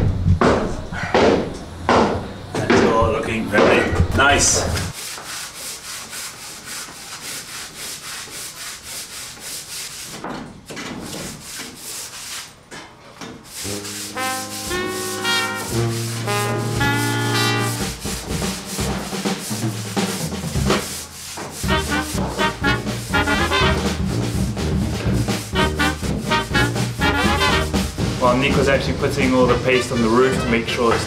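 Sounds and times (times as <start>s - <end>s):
sanding pad rasping on wood: 4.9s - 10.3s, 11.0s - 12.6s, 13.5s - 28.7s
music: 13.7s - 21.0s, 21.6s - 31.0s.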